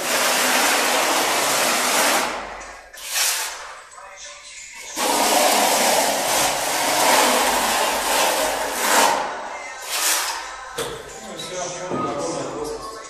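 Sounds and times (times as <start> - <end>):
spatula scraping adhesive on concrete: 0.0 - 2.4, 3.0 - 3.8, 4.8 - 10.5.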